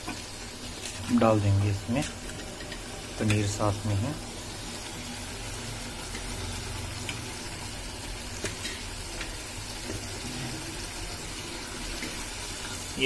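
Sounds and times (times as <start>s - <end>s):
gravy sizzling in a steel pan: 0.0s - 13.0s.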